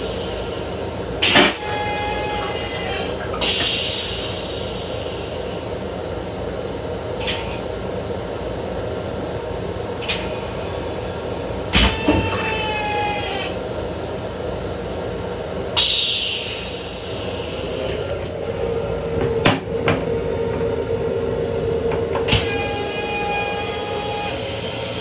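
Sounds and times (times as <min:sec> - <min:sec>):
train rumbling: 0:00.0 - 0:25.0
short wavering squeal: 0:18.2 - 0:18.6, 0:22.4 - 0:25.0.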